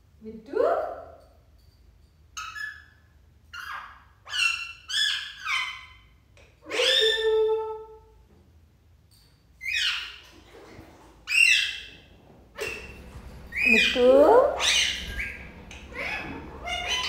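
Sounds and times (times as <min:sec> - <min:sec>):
parakeet whistled calls: 0:12.6 - 0:17.0.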